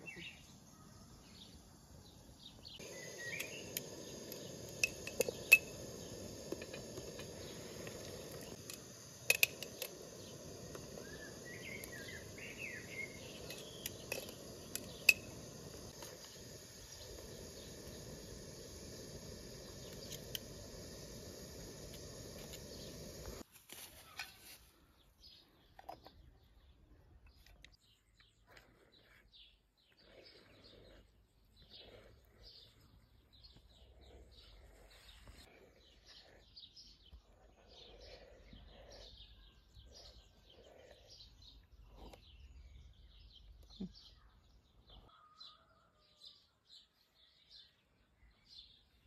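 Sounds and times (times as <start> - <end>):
bird chirping: 0.0 - 23.4
insects buzzing: 1.2 - 23.4
gas burner running: 2.8 - 23.4
metal tongs clinking on pot: 8.7 - 9.9.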